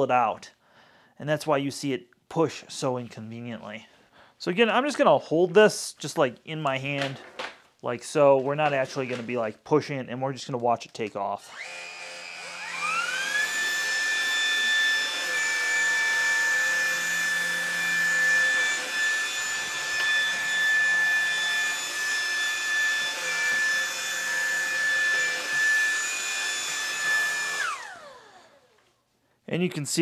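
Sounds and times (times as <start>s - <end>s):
vacuum cleaner motor whine: 11.4s - 28.8s
brush rollers on tile floor: 11.5s - 28.0s.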